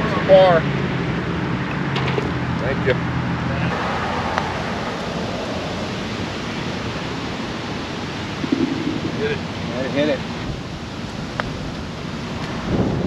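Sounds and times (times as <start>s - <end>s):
wind noise on microphone: 4.6s - 9.7s, 10.4s - 13.0s
putter striking golf ball: 8.4s - 9.2s.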